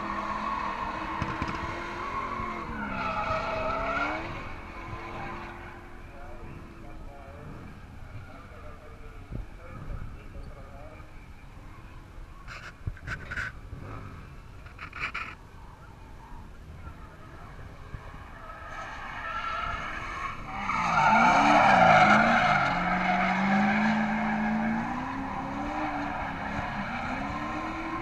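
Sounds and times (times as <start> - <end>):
car engine revving: 0.0 - 7.9, 19.8 - 28.0.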